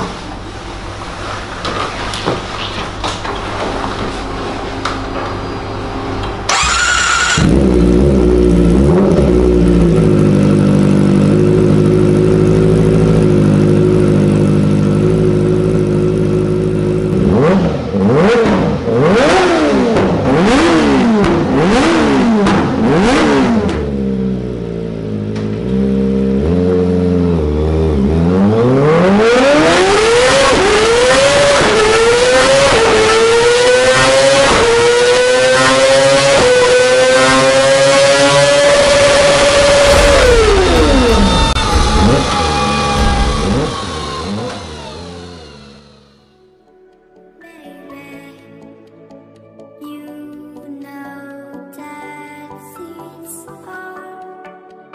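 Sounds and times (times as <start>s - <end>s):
motorcycle engine revving: 6.4s - 46.4s.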